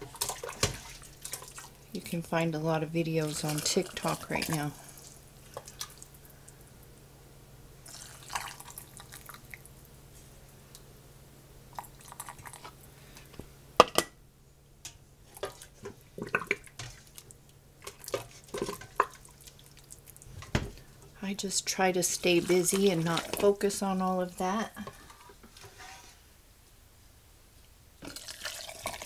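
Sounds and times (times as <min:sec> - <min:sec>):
gravy pouring and dripping: 0:00.0 - 0:02.0, 0:03.0 - 0:06.6, 0:07.8 - 0:09.7, 0:11.7 - 0:12.8, 0:15.3 - 0:23.8, 0:28.0 - 0:29.0.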